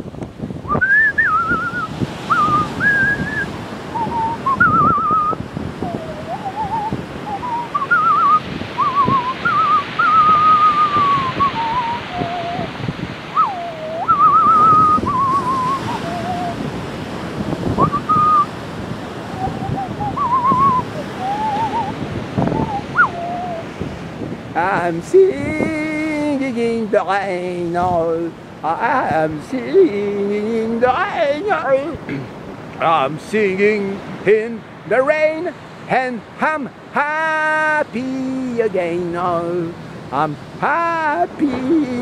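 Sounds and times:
sea waves washing: 0:00.0 - 0:42.0
man whistling a tune: 0:00.6 - 0:12.7, 0:13.3 - 0:16.6, 0:17.8 - 0:18.5, 0:19.3 - 0:23.7.

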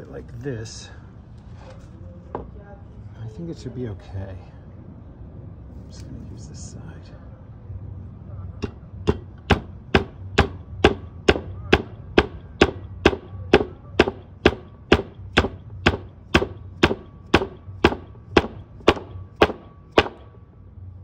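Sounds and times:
mallet striking metal: 0:08.6 - 0:20.3.

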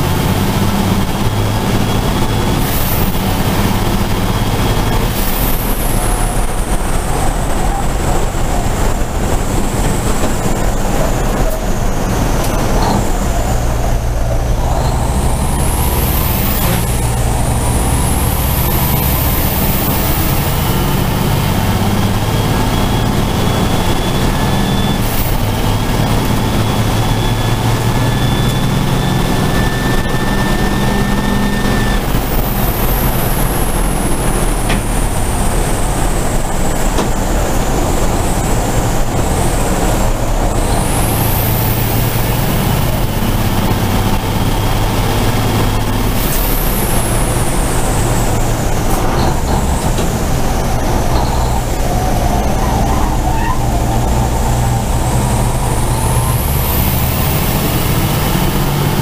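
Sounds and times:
diesel truck engine racing: 0:00.0 - 0:59.0
high turbo whine: 0:00.0 - 0:59.0.

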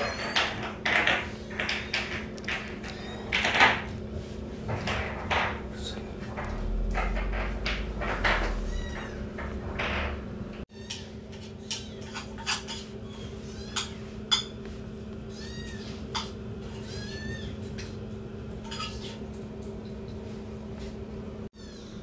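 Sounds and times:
steady low hum: 0:00.6 - 0:21.5
kitten meowing: 0:02.7 - 0:03.4, 0:08.6 - 0:09.2, 0:15.3 - 0:16.0.

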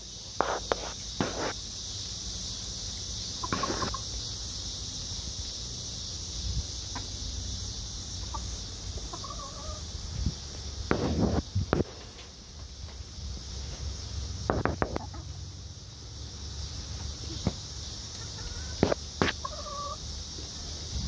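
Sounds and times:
steady high-pitched buzz: 0:00.0 - 0:21.0
hens clucking: 0:03.3 - 0:04.3, 0:08.1 - 0:10.0, 0:14.5 - 0:15.4, 0:17.0 - 0:20.8.

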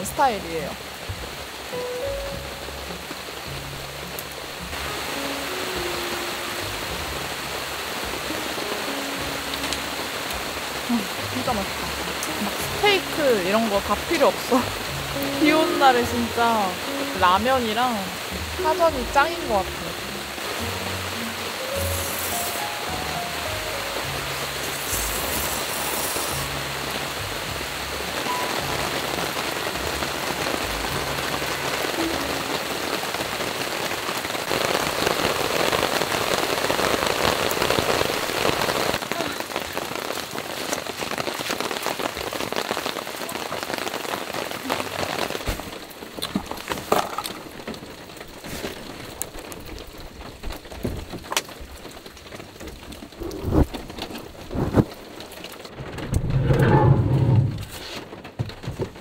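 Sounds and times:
soft background music: 0:00.0 - 0:34.2
rain on a tarp: 0:00.0 - 0:59.0.

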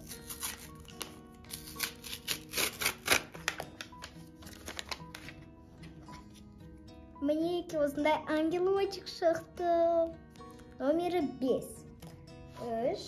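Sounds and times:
soft background music: 0:00.0 - 0:13.0
paper crinkling and rustling: 0:00.3 - 0:06.4.

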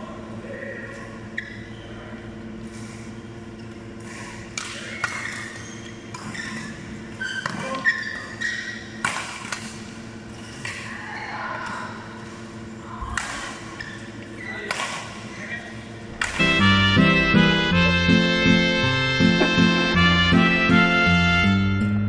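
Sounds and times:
rackets hitting shuttlecock: 0:04.0 - 0:06.4, 0:09.0 - 0:10.0, 0:14.6 - 0:15.2, 0:16.1 - 0:16.6, 0:19.1 - 0:20.4
steady hum: 0:11.9 - 0:22.0.

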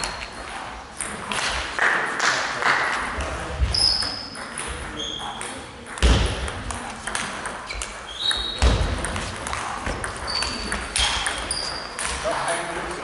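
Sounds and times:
shoes squeaking on floor: 0:00.0 - 0:00.8, 0:03.6 - 0:05.6, 0:07.6 - 0:12.3.

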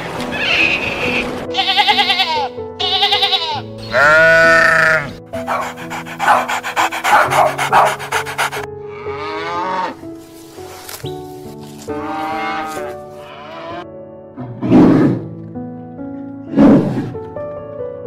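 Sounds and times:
background music: 0:00.0 - 0:18.0
livestock bleating: 0:00.3 - 0:05.2, 0:08.9 - 0:10.0, 0:11.9 - 0:13.9.

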